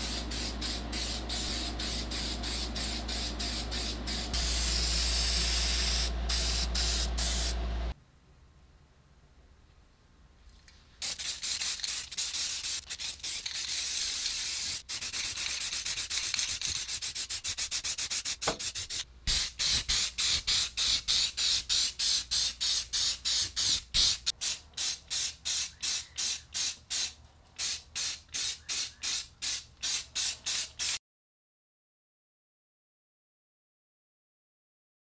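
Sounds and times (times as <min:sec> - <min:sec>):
aerosol spray can hissing: 0:00.0 - 0:07.6, 0:11.0 - 0:31.0.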